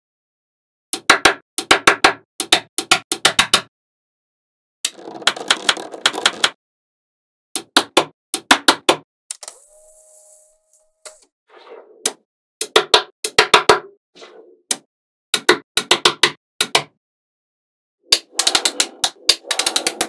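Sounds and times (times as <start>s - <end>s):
magnetic balls clicking: 18.1s - 20.0s.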